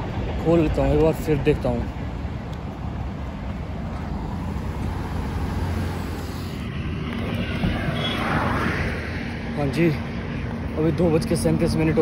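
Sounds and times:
rumble of passing vehicles: 0.0 - 12.0
vehicle passing close: 3.5 - 9.7.

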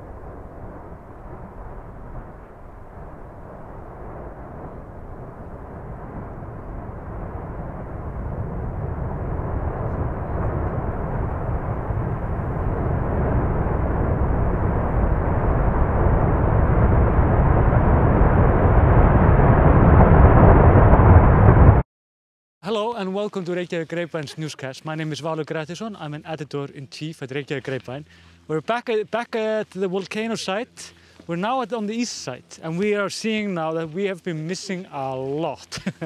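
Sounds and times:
lava fountain rumbling: 0.0 - 21.8.

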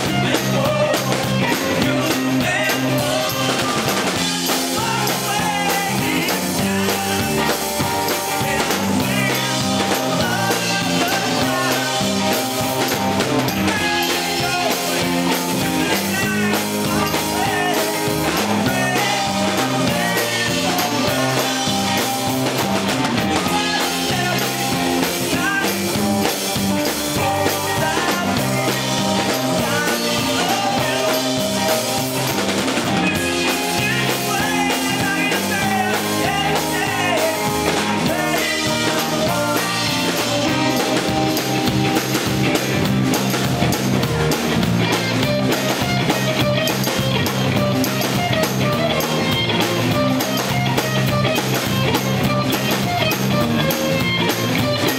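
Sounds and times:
man singing: 0.0 - 41.6
bass guitar: 0.0 - 54.9
drum kit: 0.0 - 54.9
electric guitar: 0.0 - 54.9.

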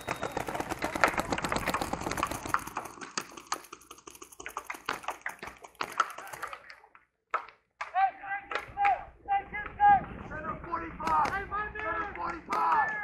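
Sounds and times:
paintball markers firing: 0.0 - 6.8, 11.0 - 13.0.

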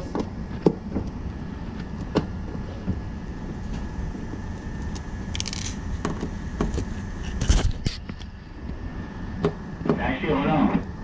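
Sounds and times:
steady low rumble: 8.1 - 11.0.

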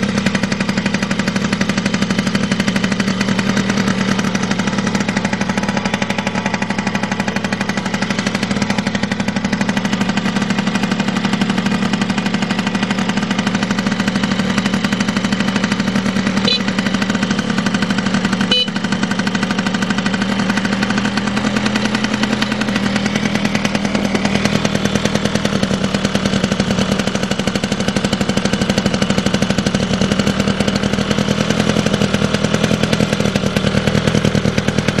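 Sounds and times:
scooter engine idling: 0.0 - 35.0.

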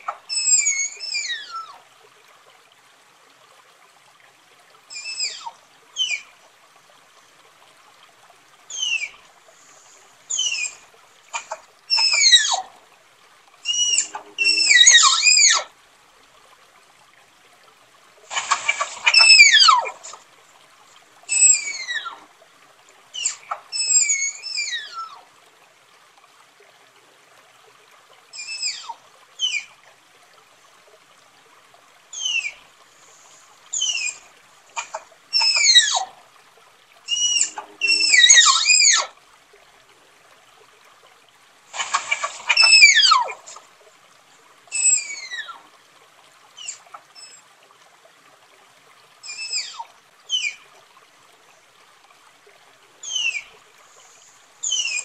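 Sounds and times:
tapir whistle-like calls: 0.3 - 1.7, 4.9 - 6.3, 8.7 - 9.2, 10.3 - 12.6, 13.6 - 15.7, 18.3 - 20.2, 21.3 - 22.2, 23.2 - 25.2, 32.2 - 32.6, 33.7 - 36.1, 37.1 - 39.1, 41.8 - 43.6, 44.7 - 45.6, 46.6 - 47.4, 49.2 - 50.6, 53.0 - 53.5, 54.6 - 55.0.

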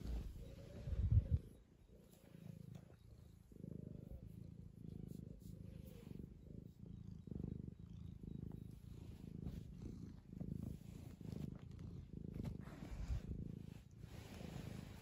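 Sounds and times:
cat purring: 0.0 - 15.0.

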